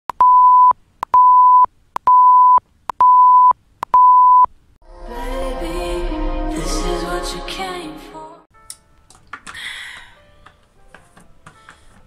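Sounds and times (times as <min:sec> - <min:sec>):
electronic beeps: 0:00.1 - 0:04.5
music: 0:04.8 - 0:12.0.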